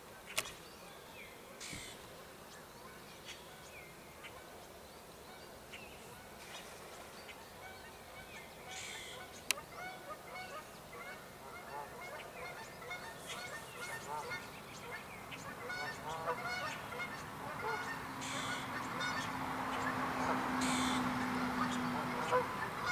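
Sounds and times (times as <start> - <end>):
sharp clicks: 0.3 - 0.6
geese honking: 7.6 - 22.9.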